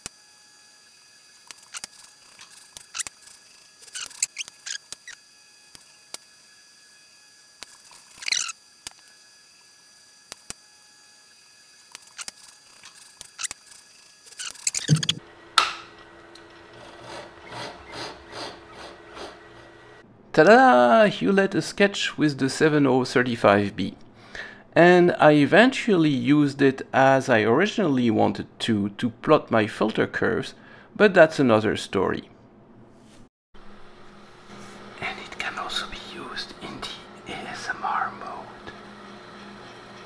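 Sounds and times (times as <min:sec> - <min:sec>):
pen scratching and squeaking on paper: 0:01.6 - 0:05.2, 0:07.8 - 0:08.6, 0:12.2 - 0:15.2.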